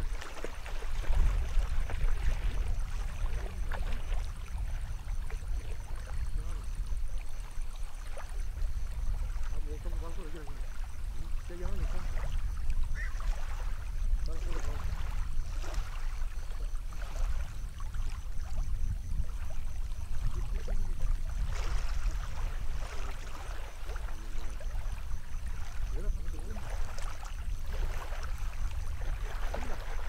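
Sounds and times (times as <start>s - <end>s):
water sloshing: 0.0s - 30.0s
wind rumble on microphone: 0.0s - 30.0s.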